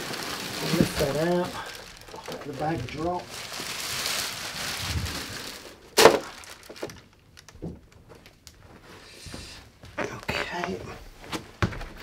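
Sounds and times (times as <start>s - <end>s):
packaging rustling: 0.0s - 8.7s.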